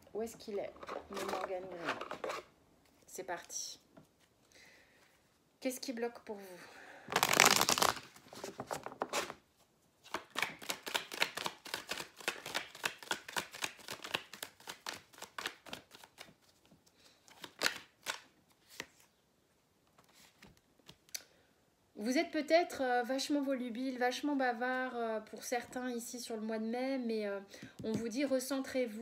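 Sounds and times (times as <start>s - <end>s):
cards being shuffled: 0.7s - 4.3s, 7.1s - 9.4s, 10.0s - 19.1s.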